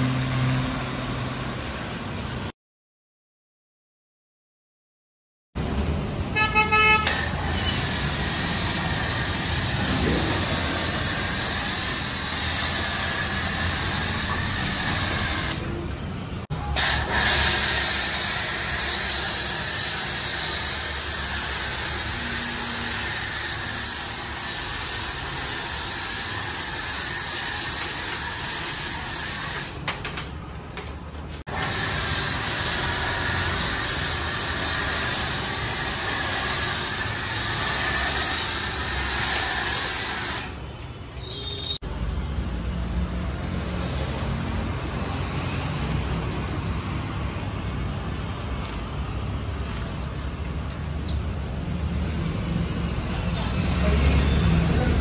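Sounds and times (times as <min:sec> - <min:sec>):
foam spray hissing: 0:07.2 - 0:15.8, 0:16.8 - 0:29.8, 0:31.5 - 0:40.6.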